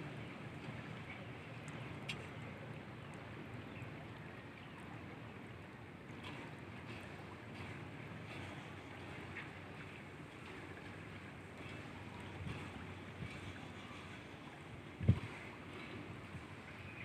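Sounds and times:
faint low engine hum: 0:00.0 - 0:17.0
water and wind noise: 0:00.0 - 0:17.0
faint ticks: 0:01.6 - 0:02.5.

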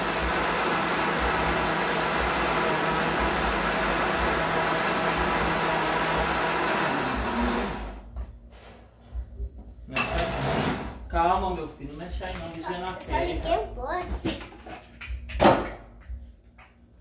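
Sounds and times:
blender running: 0:00.0 - 0:08.1.

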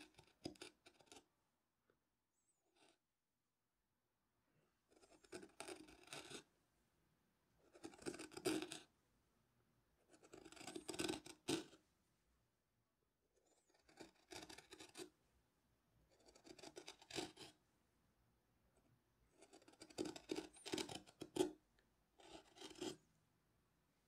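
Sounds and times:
chisel scraping wood: 0:00.0 - 0:01.2, 0:04.9 - 0:06.5, 0:07.7 - 0:08.9, 0:10.1 - 0:11.8, 0:13.6 - 0:15.1, 0:16.1 - 0:17.6, 0:19.3 - 0:21.6, 0:22.2 - 0:23.0.

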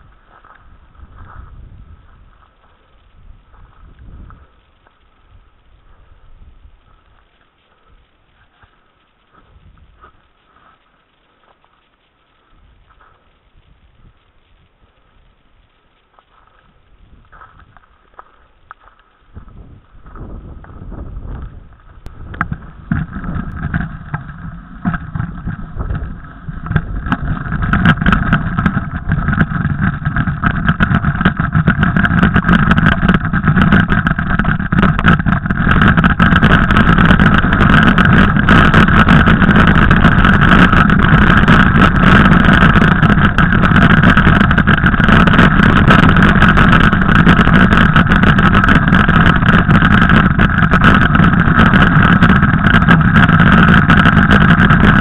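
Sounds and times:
wind rushing on microphone: 0:00.0 - 0:07.2, 0:09.4 - 0:10.2, 0:12.6 - 0:15.4, 0:16.6 - 0:17.8, 0:19.3 - 0:55.0
bike crunching and knocking: 0:17.3 - 0:55.0.

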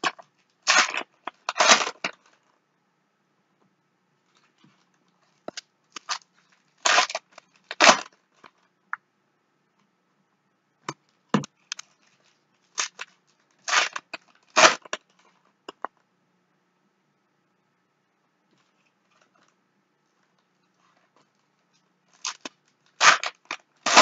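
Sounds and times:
foil wrappers crinkling and tearing: 0:00.0 - 0:02.3, 0:05.4 - 0:08.2, 0:11.7 - 0:15.1, 0:22.1 - 0:24.0.

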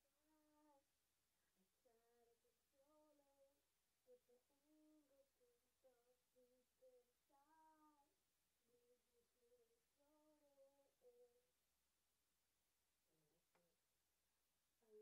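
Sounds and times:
woman humming a slow tune: 0:04.1 - 0:08.1.

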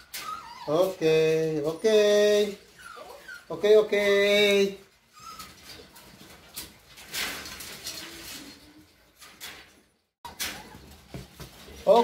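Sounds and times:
puppy whimpers: 0:00.0 - 0:01.0, 0:02.6 - 0:03.6, 0:05.1 - 0:05.8
puppies scuffling in cage: 0:00.0 - 0:12.0.

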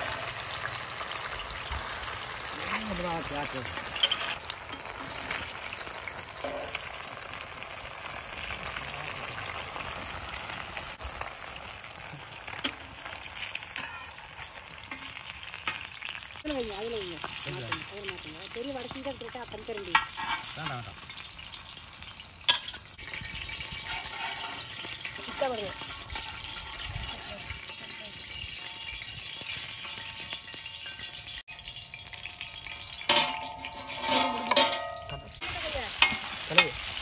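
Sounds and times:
fish sizzling in oil: 0:00.0 - 0:37.0
metal spatula clinking on pan: 0:13.7 - 0:14.2, 0:22.5 - 0:35.4, 0:36.0 - 0:36.8.

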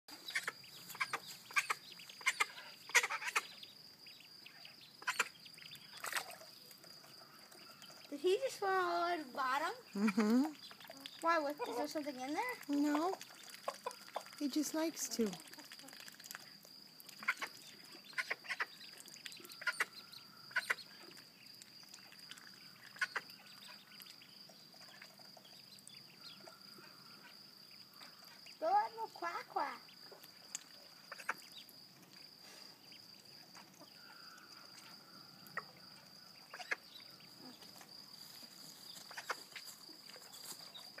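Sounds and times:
ducklings peeping: 0:00.1 - 0:06.3, 0:09.9 - 0:12.0, 0:12.6 - 0:14.4, 0:17.1 - 0:21.2, 0:21.9 - 0:27.3, 0:29.8 - 0:31.7, 0:36.3 - 0:37.8, 0:38.9 - 0:41.0
ducks quacking: 0:05.0 - 0:05.4, 0:17.2 - 0:18.8, 0:19.6 - 0:20.9.

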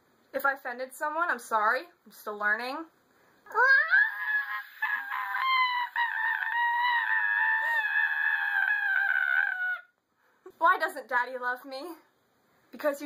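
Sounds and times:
girl screeching: 0:03.5 - 0:10.0.

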